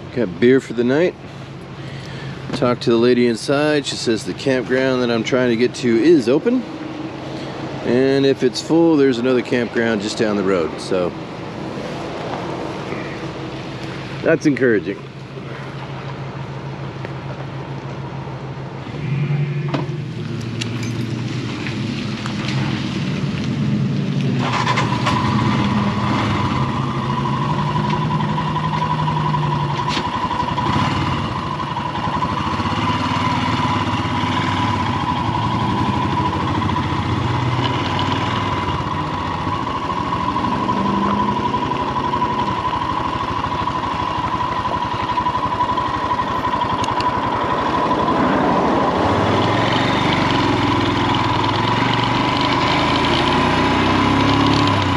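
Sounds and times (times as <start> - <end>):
motorcycle engine running: 15.4 - 54.9
steady high whine: 39.0 - 50.2.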